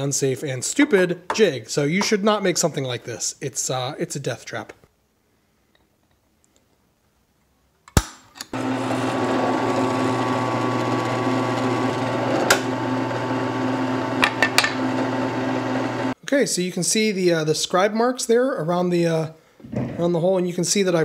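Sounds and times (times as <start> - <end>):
drill press motor hum: 8.6 - 16.2.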